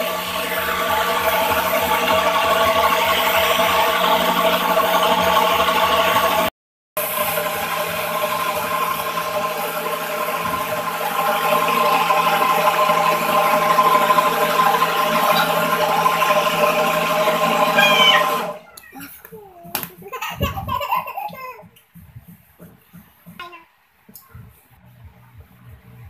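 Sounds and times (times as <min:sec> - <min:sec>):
blender motor whining: 0:00.0 - 0:18.7.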